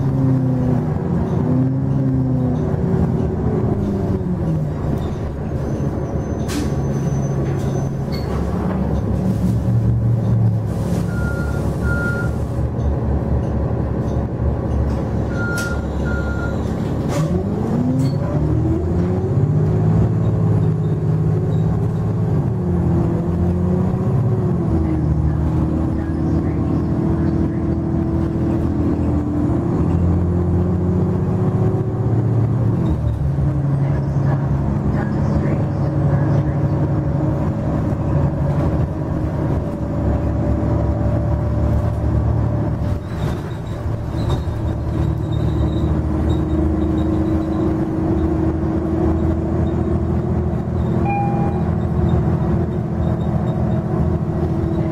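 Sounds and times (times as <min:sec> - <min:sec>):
bus engine accelerating through gears: 0:00.0 - 0:54.9
short double beeps: 0:11.1 - 0:12.4, 0:15.3 - 0:16.6, 0:51.0 - 0:52.2.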